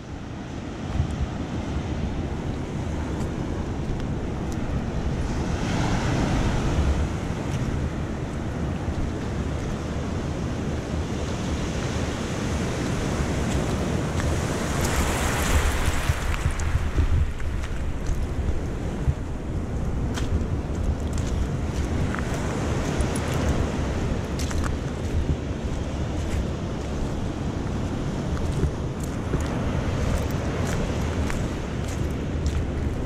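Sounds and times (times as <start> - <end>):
sea surf breaking on a beach: 0.0 - 33.0.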